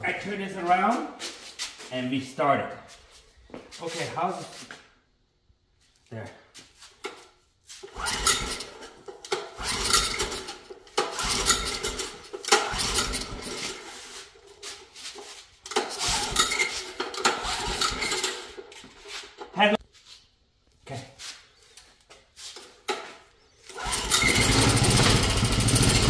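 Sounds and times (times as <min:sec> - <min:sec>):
engine cranking: 0:07.8 - 0:14.4, 0:15.6 - 0:19.5, 0:23.7 - 0:26.0
recoil starter pulled: 0:07.8 - 0:14.4, 0:15.6 - 0:19.5, 0:23.7 - 0:26.0.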